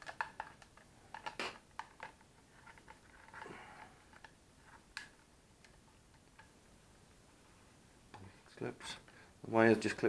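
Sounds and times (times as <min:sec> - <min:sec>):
handling clicks and rustles: 0:00.0 - 0:06.6.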